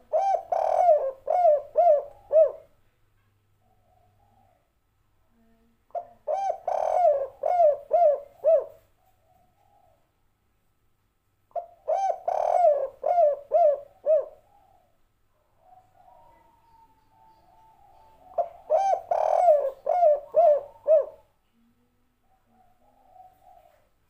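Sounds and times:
dove cooing: 0.0 - 2.7, 5.9 - 10.0, 11.5 - 15.0, 15.6 - 21.3, 22.2 - 24.0.

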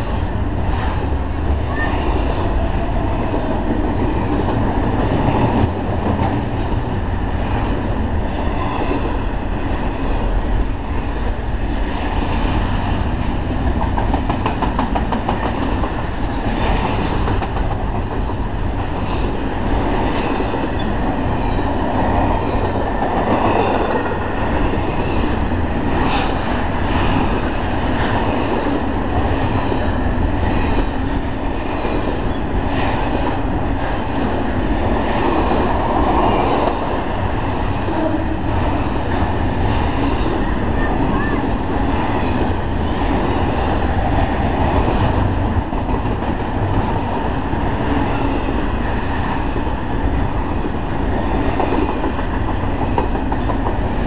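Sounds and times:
freight train passing: 0.0 - 54.0.

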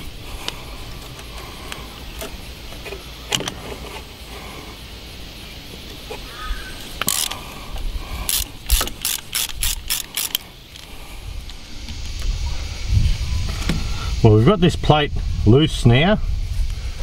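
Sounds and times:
spanner clicking: 7.0 - 7.4, 8.3 - 10.9
spanner scraping metal: 7.0 - 7.4, 8.3 - 10.9.

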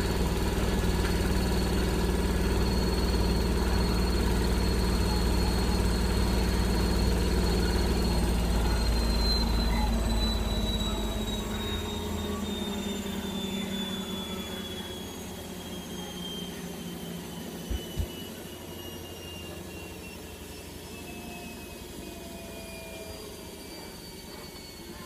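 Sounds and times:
washing machine spin winding down: 0.0 - 25.0.

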